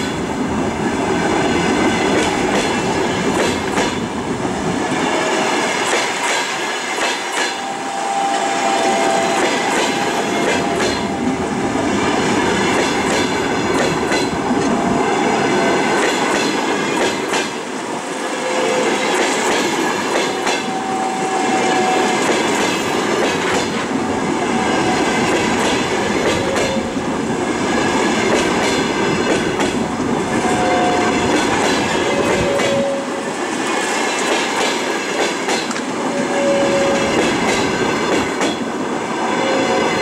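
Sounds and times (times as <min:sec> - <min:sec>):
train wheels rolling on rails: 0:00.0 - 0:40.0
train wheels squealing: 0:07.2 - 0:11.4, 0:36.1 - 0:37.6.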